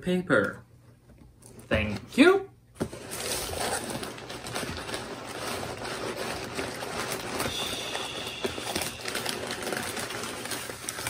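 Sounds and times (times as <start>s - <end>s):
cardboard flaps scraping: 2.8s - 11.0s
packing paper rustling: 2.8s - 11.0s.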